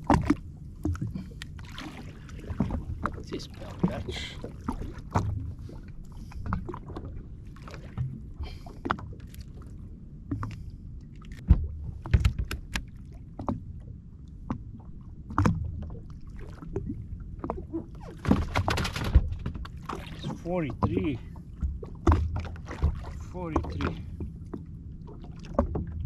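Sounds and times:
water lapping against hull: 0:00.0 - 0:26.0
knocks and clicks of gear: 0:11.3 - 0:13.6.

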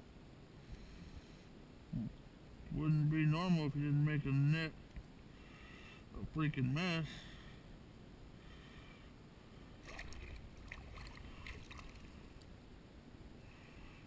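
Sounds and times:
water sloshing and dripping: 0:09.8 - 0:12.4
small splashes and ticks: 0:09.8 - 0:12.5.

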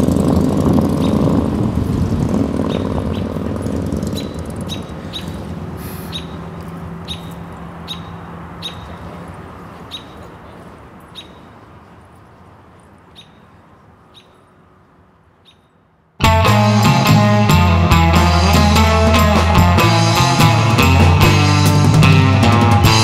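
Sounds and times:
bird chirping: 0:02.6 - 0:03.4, 0:04.0 - 0:09.2, 0:09.8 - 0:10.4, 0:11.0 - 0:11.6, 0:13.1 - 0:14.6, 0:15.4 - 0:15.8
loud rock music with guitar: 0:16.2 - 0:23.0.

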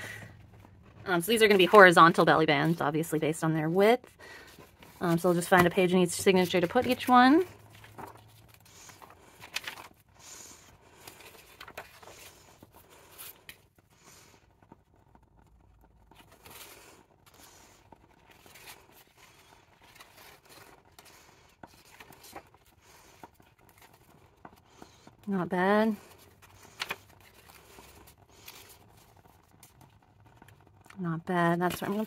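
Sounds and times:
pages being leafed through: 0:00.4 - 0:03.7, 0:04.3 - 0:25.1, 0:25.9 - 0:30.9, 0:31.5 - 0:32.0.

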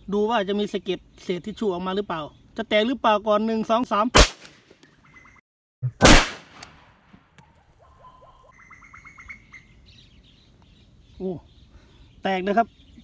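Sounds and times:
blank pistol bangs: 0:04.2 - 0:04.5, 0:06.0 - 0:06.8.

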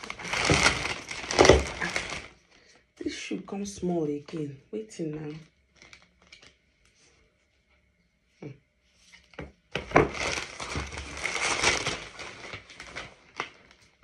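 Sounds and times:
plastic bag crinkling: 0:00.0 - 0:03.2, 0:05.0 - 0:06.6, 0:09.8 - 0:14.0.

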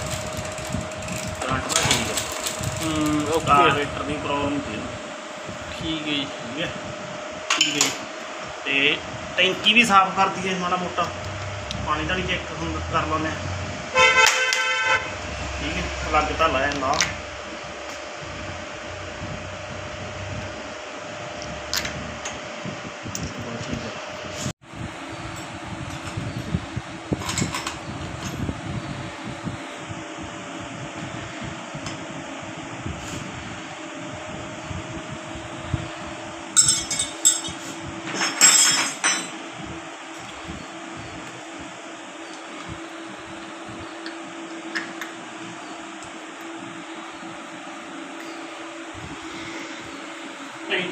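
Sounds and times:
electric fan whirring: 0:00.0 - 0:50.9.

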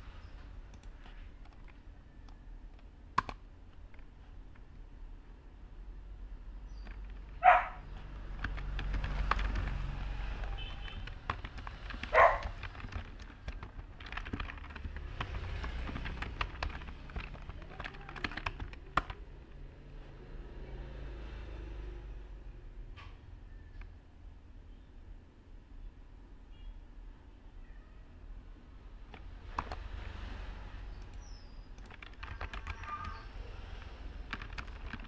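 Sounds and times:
computer keyboard typing: 0:00.7 - 0:04.8, 0:06.7 - 0:19.6, 0:29.0 - 0:30.2, 0:30.9 - 0:35.0
dog barking: 0:07.4 - 0:07.8, 0:12.1 - 0:12.6.

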